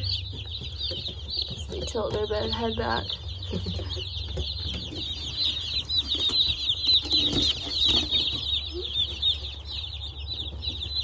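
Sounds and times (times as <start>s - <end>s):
chicks peeping: 0.0s - 11.0s.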